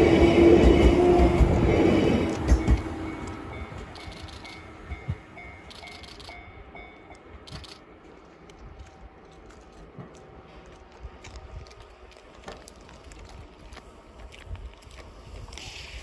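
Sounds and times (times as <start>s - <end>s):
electric train running: 0.0s - 11.2s
level-crossing warning bell: 2.5s - 7.4s.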